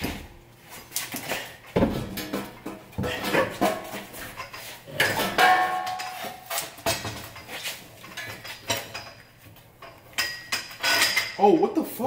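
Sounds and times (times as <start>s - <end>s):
metal tools clinking and knocking: 2.2s - 11.8s.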